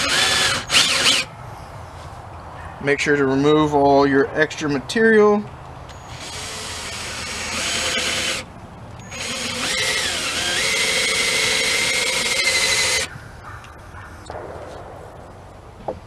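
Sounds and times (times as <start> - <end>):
cordless drill boring into metal: 0.0 - 1.3, 6.0 - 13.1.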